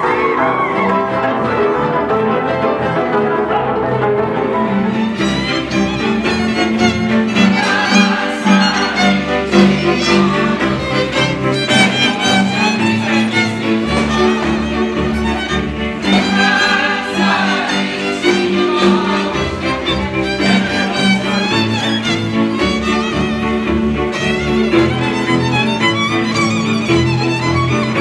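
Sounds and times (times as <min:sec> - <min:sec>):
double bass line: 0:00.0 - 0:28.0
fiddles bowing a dance tune: 0:04.4 - 0:28.0.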